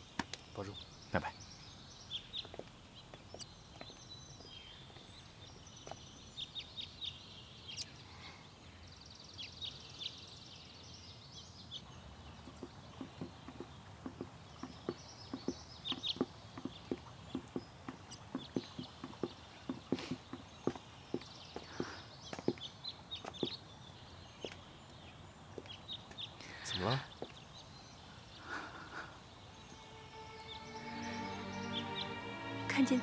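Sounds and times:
small birds chirping: 0.0 - 33.0
footsteps on walkway: 2.3 - 6.4, 12.3 - 26.4, 27.1 - 27.4.

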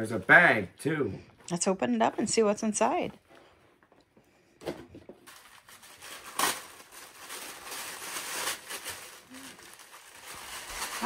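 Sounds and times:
plastic wrapping crinkling: 5.2 - 11.0.

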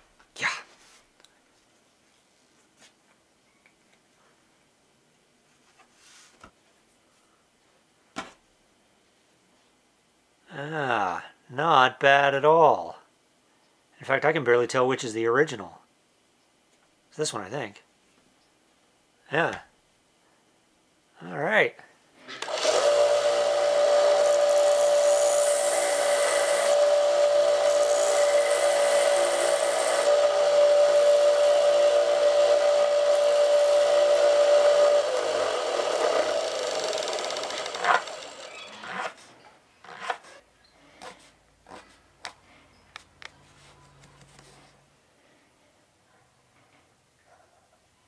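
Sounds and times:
power saw motor whine: 22.4 - 39.1.

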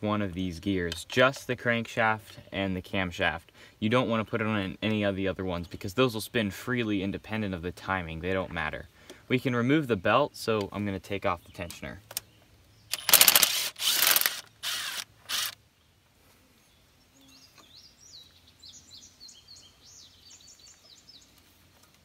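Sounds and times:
rapid clicking of hand tool: 12.9 - 15.6
faint bird chirps: 15.8 - 21.4.

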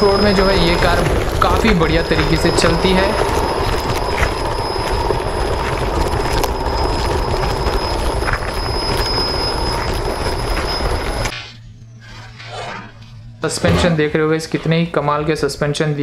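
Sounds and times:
rc truck rattling over dirt: 0.0 - 11.3
high motor whine: 0.0 - 14.9.

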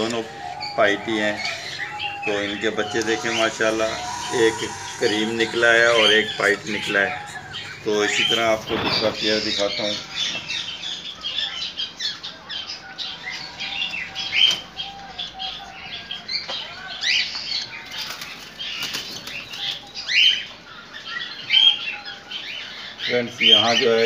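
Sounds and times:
cockatiels chirping: 0.0 - 24.0
wings flapping: 8.2 - 9.6, 17.9 - 19.9.

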